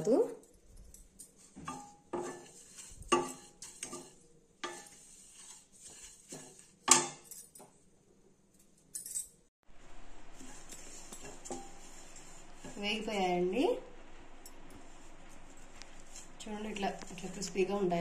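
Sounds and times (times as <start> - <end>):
wooden spatula scraping oats in pan: 1.4 - 7.2, 10.2 - 13.6, 14.7 - 17.9.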